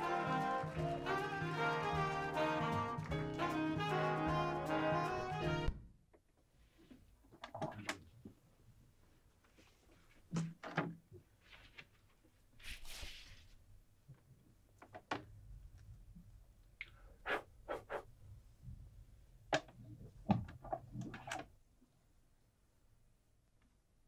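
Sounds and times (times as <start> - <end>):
short rustle: 11.4 - 13.6.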